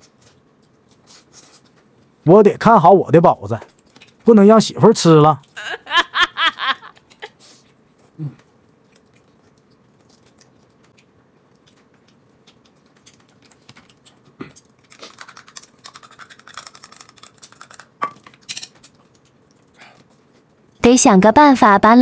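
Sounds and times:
person laughing: 5.6s - 7.4s.

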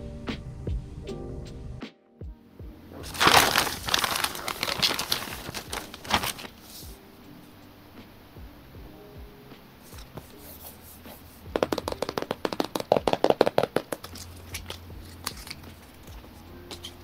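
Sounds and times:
fingers tapping a cardboard box: 11.5s - 14.8s.

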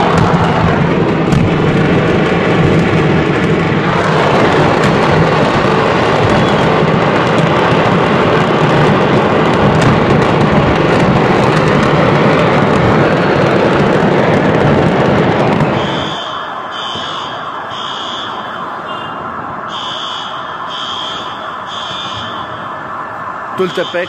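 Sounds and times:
fireworks exploding: 0.0s - 24.0s
electronic alarm beeping: 15.8s - 22.8s, 23.6s - 24.0s.

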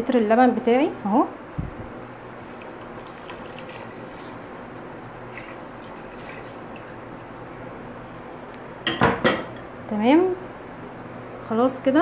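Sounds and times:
milk pouring into a metal pot: 2.1s - 7.1s.

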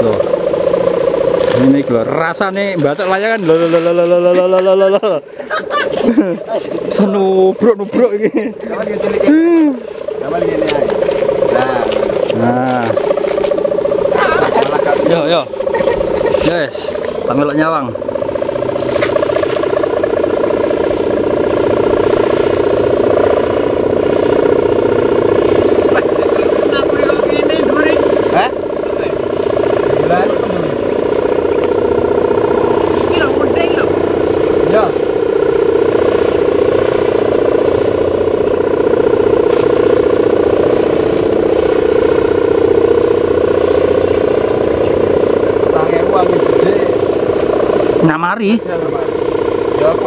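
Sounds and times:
kite hummer buzzing drone: 0.0s - 50.0s.

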